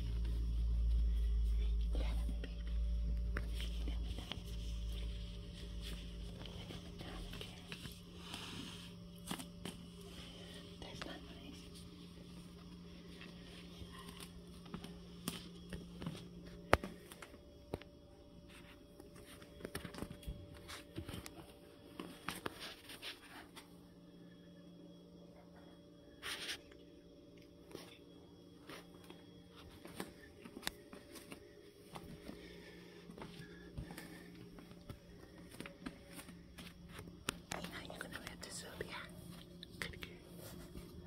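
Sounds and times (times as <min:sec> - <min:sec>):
low steady hum: 0:00.0 - 0:41.0.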